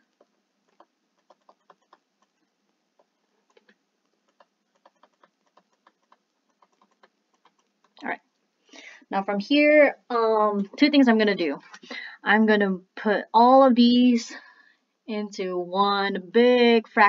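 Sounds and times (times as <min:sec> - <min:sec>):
faint clicks and taps: 0:00.0 - 0:08.5.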